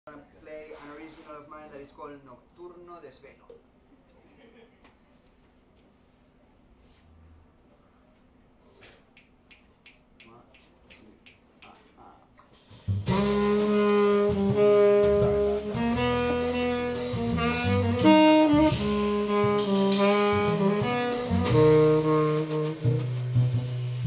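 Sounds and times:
drums: 0:12.4 - 0:24.0
double bass line: 0:12.8 - 0:24.0
saxophone notes: 0:13.0 - 0:24.0.

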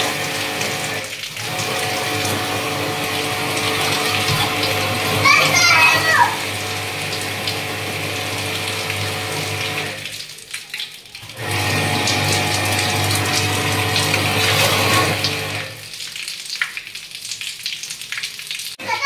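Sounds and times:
pressure washer motor humming: 0:00.0 - 0:10.0, 0:11.3 - 0:15.7.

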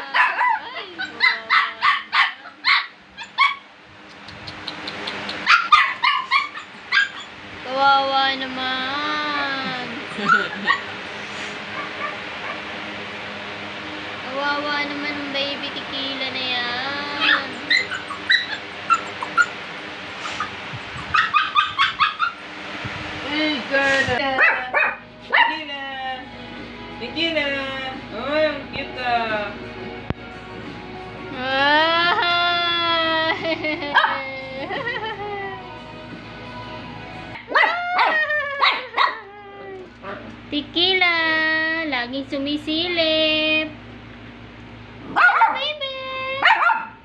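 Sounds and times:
puppy yapping: 0:00.0 - 0:03.7, 0:04.7 - 0:07.3, 0:10.2 - 0:10.9, 0:11.7 - 0:12.6, 0:17.2 - 0:19.6, 0:20.2 - 0:22.4, 0:24.4 - 0:25.6, 0:37.4 - 0:40.3, 0:45.1 - 0:45.7, 0:46.4 - 0:47.0
puppy whimpering yips: 0:05.4 - 0:07.3, 0:17.2 - 0:19.6.

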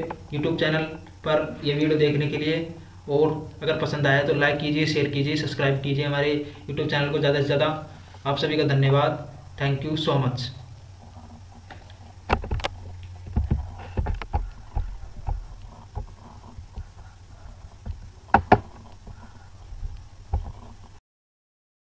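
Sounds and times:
low electrical hum: 0:00.0 - 0:21.0
knocks on a desk: 0:18.3 - 0:18.7.

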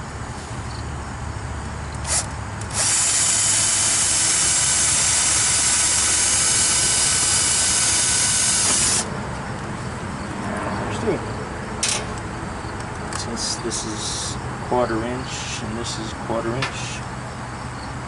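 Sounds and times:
electric drill whining: 0:02.0 - 0:09.1.

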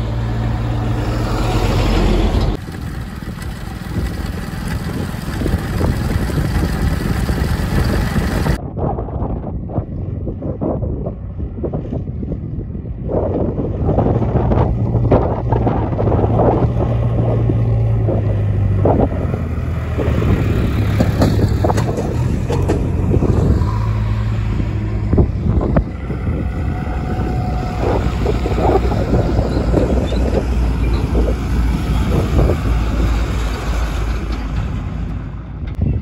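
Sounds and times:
heavy diesel engine running: 0:00.0 - 0:08.6, 0:15.4 - 0:35.8
short knocks and clatters: 0:20.9 - 0:23.0.

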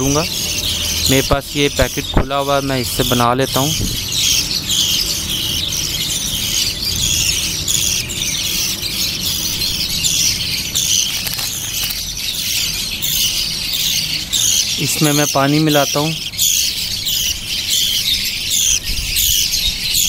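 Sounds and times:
budgerigar chicks begging calls: 0:00.0 - 0:20.0.

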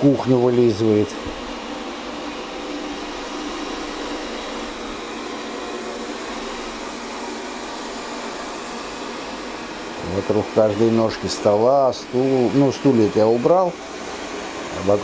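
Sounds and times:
robot vacuum cleaner whirring: 0:00.0 - 0:15.0.

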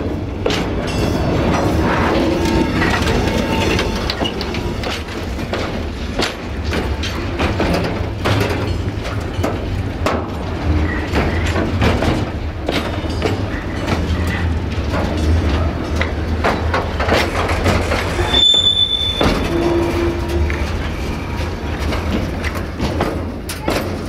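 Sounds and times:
low train rumble: 0:00.0 - 0:24.0
train wheels clattering over track: 0:00.0 - 0:24.0
train wheel squeal: 0:00.9 - 0:05.0, 0:18.0 - 0:21.6.

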